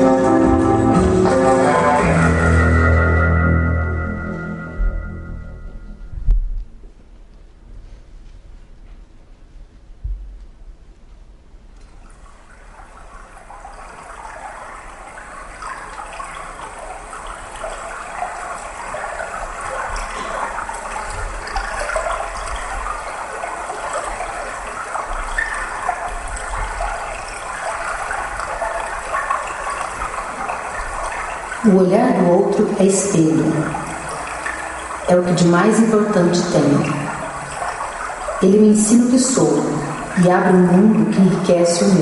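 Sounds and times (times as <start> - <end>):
rushing bubbling water: 0.0 - 3.3, 11.9 - 42.0
low thuds: 4.7 - 7.0, 10.0 - 11.2.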